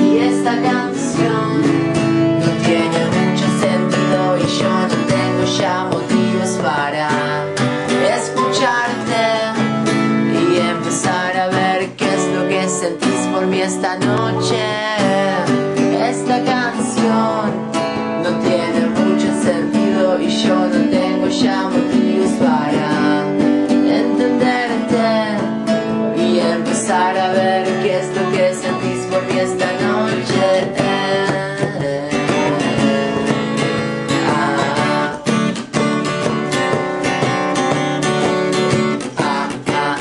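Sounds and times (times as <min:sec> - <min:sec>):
acoustic guitar strumming: 0:00.0 - 0:40.0
person singing: 0:00.0 - 0:40.0.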